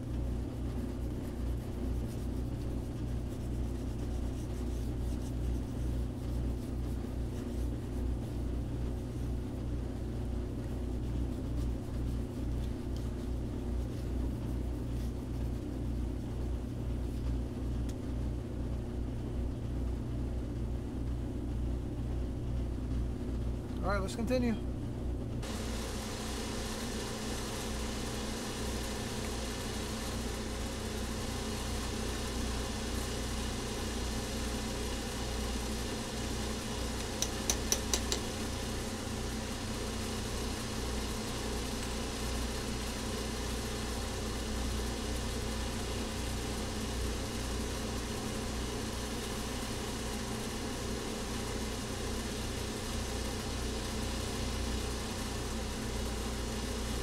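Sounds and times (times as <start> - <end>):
electric motor humming: 25.4 - 57.0
sharp ticks: 37.0 - 38.3.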